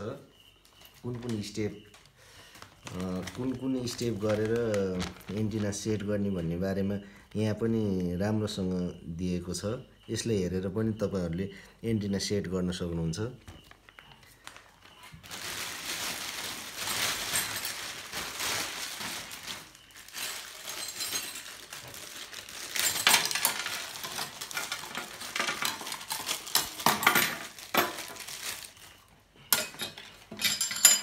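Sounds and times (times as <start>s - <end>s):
metal rods rattling on glass: 22.6s - 28.2s, 29.5s - 31.0s.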